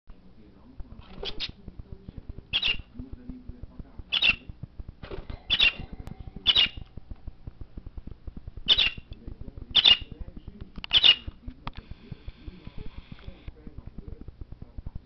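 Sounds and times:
budgerigar chirps: 0:02.5 - 0:02.9, 0:04.1 - 0:04.5, 0:05.5 - 0:06.8, 0:08.7 - 0:09.1, 0:09.7 - 0:10.1, 0:10.9 - 0:11.3.

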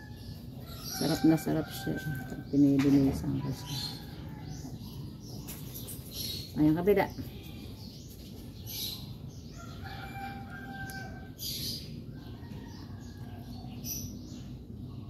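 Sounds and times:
rooster crowing: 0:09.5 - 0:11.4.

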